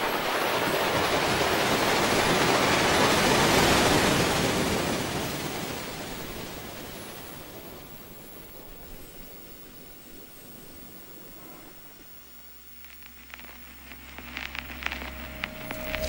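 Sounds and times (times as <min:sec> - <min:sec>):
rushing noise: 0:11.1 - 0:16.0.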